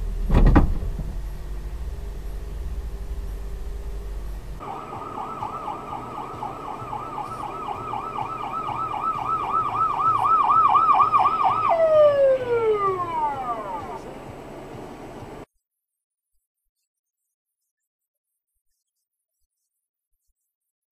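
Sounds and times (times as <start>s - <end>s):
emergency siren yelping: 4.6s - 14.2s.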